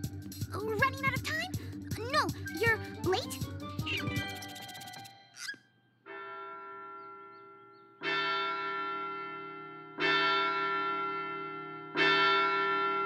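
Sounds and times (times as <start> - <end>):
clock tower bell striking: 6.0 - 13.0.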